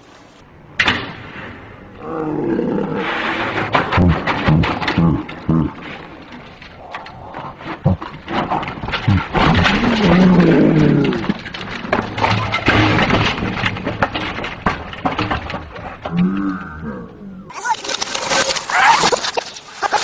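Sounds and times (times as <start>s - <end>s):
slowed-down low drawn-out tones: 15.2s - 17.5s.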